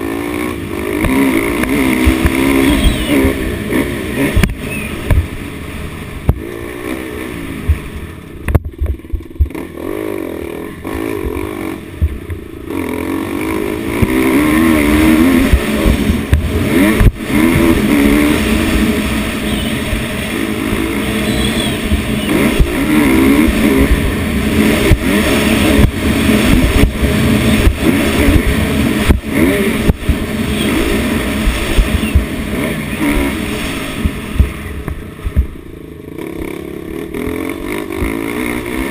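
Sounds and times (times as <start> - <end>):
dirt bike engine revving: 0.0 - 38.9
sharp thumps: 1.0 - 3.4, 4.2 - 5.4, 7.6 - 9.7, 11.0 - 12.5, 13.9 - 17.8, 24.8 - 32.4, 33.0 - 35.7.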